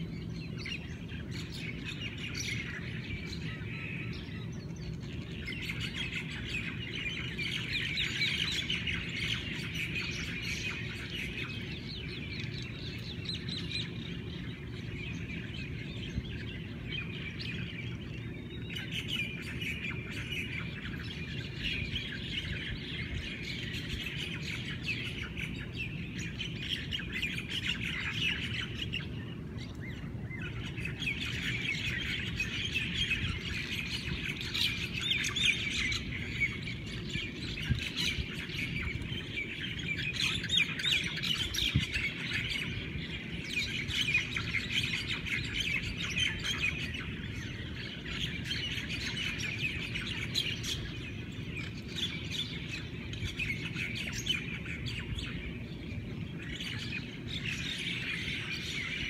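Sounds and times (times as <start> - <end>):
birds singing: 0.0 - 59.0.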